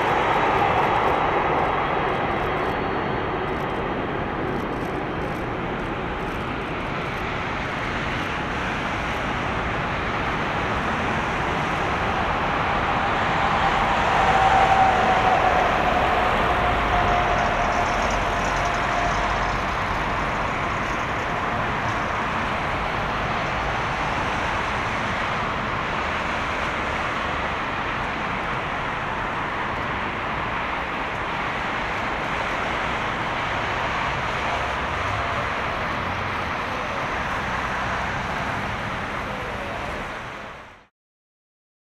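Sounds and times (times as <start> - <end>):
thin whine: 0.0 - 24.8
jet engines running: 0.0 - 40.6.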